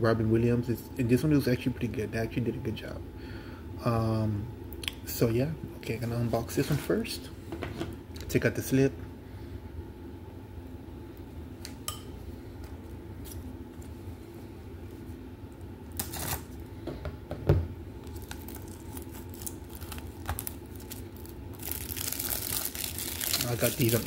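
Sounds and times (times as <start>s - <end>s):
cellophane wrap crinkling: 15.9s - 16.6s, 18.0s - 24.0s.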